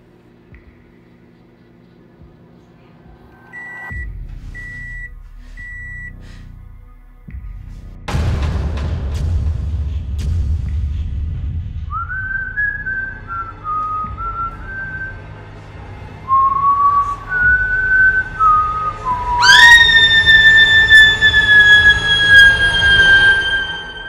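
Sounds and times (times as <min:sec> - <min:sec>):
eerie whistled tune: 0:11.9 - 0:15.4, 0:16.2 - 0:24.0
woman screaming: 0:19.2 - 0:24.0.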